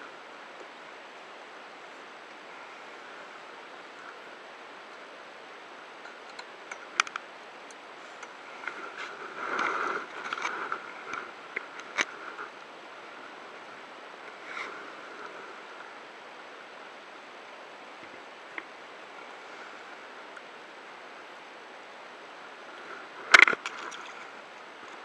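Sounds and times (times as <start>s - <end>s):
sea and wind noise: 0.0s - 25.0s
fish splashing: 23.3s - 24.4s.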